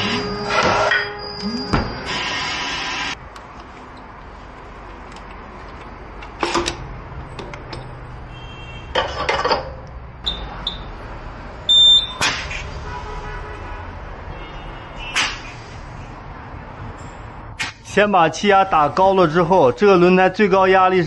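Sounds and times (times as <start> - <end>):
keypad beeps: 11.7 - 12.2.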